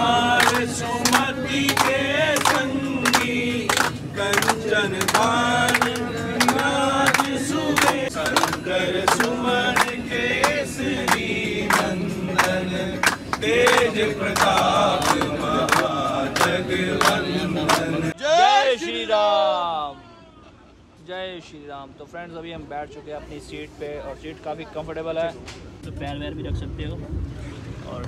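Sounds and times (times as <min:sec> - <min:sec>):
group chanting in chorus: 0:00.0 - 0:18.2
people clapping a steady beat: 0:00.0 - 0:18.2.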